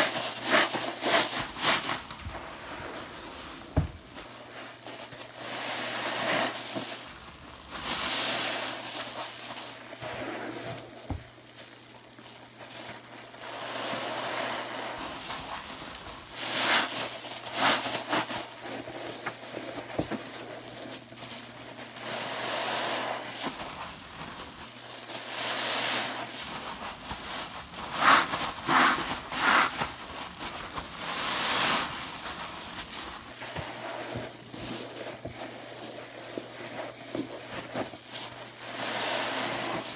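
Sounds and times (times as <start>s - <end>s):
sponge squelching in soapy water: 0.0s - 39.9s.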